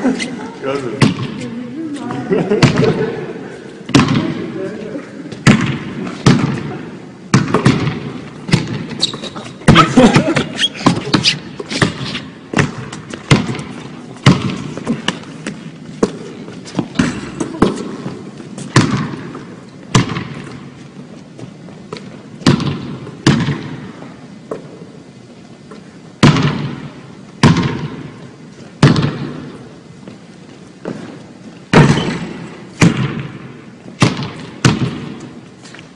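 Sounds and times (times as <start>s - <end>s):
basketball bouncing on hardwood floor: 3.9s - 4.3s, 7.3s - 9.8s, 11.8s - 16.2s, 16.8s - 20.6s, 28.8s - 29.5s, 31.7s - 33.3s, 34.0s - 35.2s.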